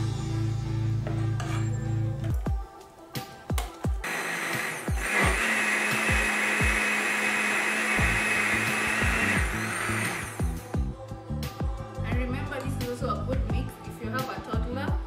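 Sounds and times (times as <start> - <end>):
background music with kick drum: 0.0 - 15.0
electric blender running: 4.0 - 10.6.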